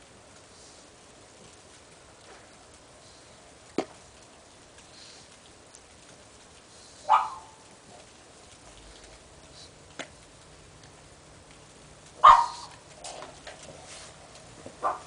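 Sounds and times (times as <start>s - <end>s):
dog barking: 7.0s - 7.7s, 12.2s - 12.8s, 14.8s - 15.0s.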